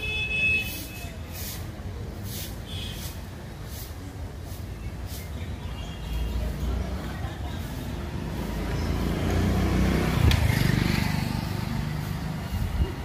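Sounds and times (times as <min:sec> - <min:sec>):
vehicle passing close by: 0:06.4 - 0:13.0.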